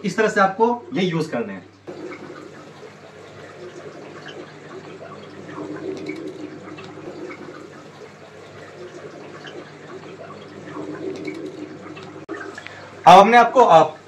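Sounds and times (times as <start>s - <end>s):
aquarium water trickling: 0.0s - 14.0s
small splashes: 1.8s - 13.0s.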